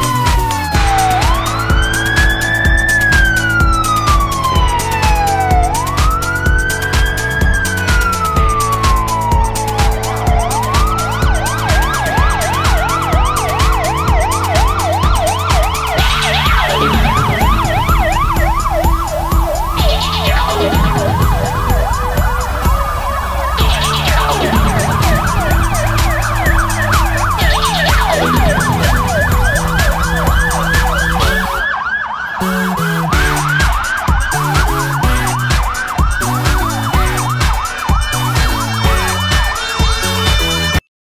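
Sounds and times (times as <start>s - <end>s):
background music with beat: 0.0s - 40.8s
fire engine siren: 0.0s - 40.8s.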